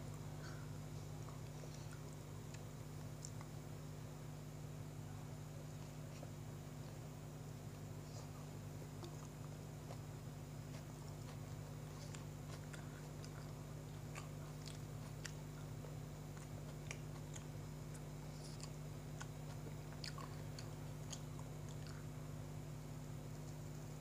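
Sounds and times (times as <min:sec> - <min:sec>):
steady low hum: 0:00.0 - 0:24.0
person chewing: 0:01.2 - 0:03.6, 0:07.7 - 0:22.2.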